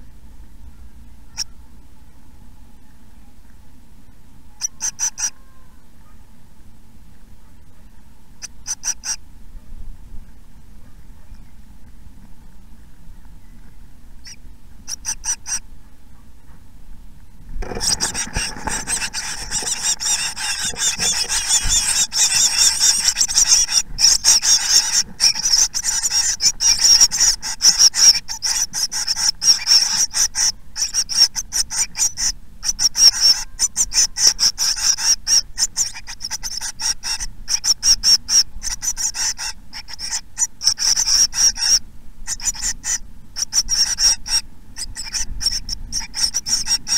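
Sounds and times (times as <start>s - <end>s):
nestlings begging calls: 4.6s - 5.7s, 8.4s - 9.2s, 14.2s - 15.7s, 17.6s - 46.9s
scratchy clicks of chicks moving: 17.2s - 46.9s.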